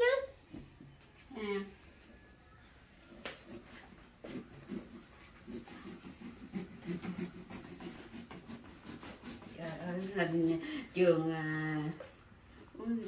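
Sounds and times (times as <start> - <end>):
knife sawing into pumpkin: 3.4 - 11.1.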